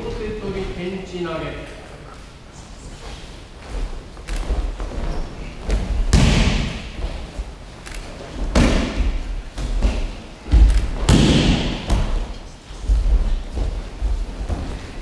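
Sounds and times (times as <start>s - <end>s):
rustling on mats: 1.7s - 15.0s
bodies thudding onto mats: 3.6s - 7.5s, 8.1s - 15.0s.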